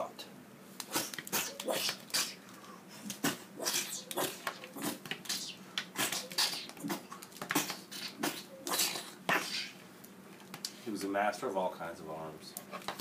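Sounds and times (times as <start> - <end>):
growling mouth noises: 3.1 - 9.8.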